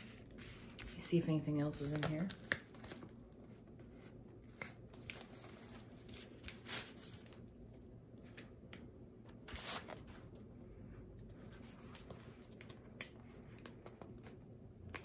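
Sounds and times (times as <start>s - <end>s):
packaging rustling and crinkling: 1.8s - 3.6s, 4.4s - 7.5s.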